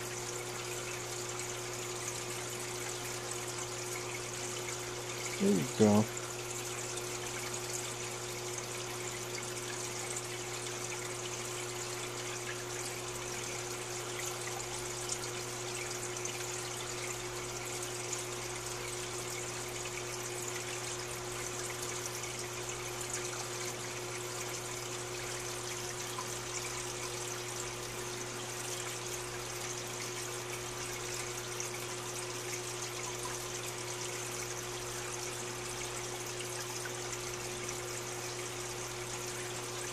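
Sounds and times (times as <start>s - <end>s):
water trickling: 0.0s - 39.9s
low electric hum: 4.6s - 6.4s.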